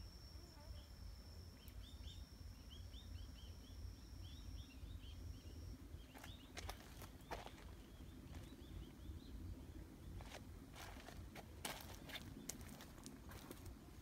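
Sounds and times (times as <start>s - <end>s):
thin steady high tone: 0.0s - 9.2s
small bird chirping: 0.5s - 11.2s.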